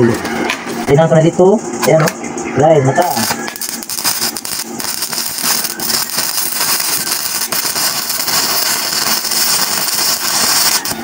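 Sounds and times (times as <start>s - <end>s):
welding arc crackling: 2.9s - 11.0s.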